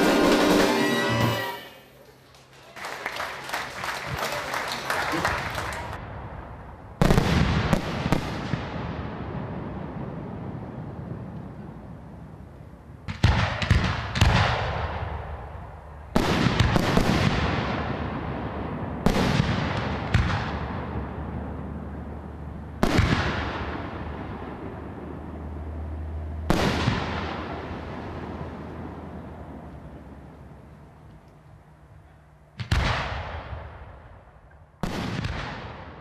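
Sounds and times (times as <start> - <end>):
fireworks bursting: 0.0 - 2.1, 7.0 - 10.4, 13.0 - 15.5, 16.1 - 21.4, 22.8 - 25.1, 26.4 - 29.0, 34.8 - 36.0.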